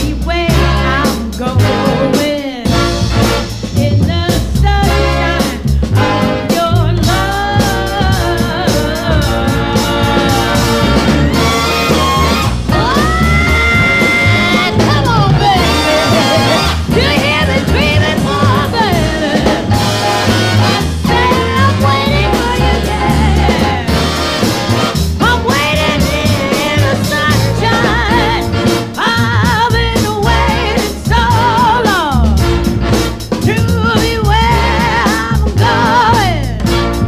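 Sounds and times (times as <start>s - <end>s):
drums: 0.0s - 37.0s
steady bass line: 0.0s - 37.0s
person singing: 6.6s - 19.7s, 21.1s - 24.2s.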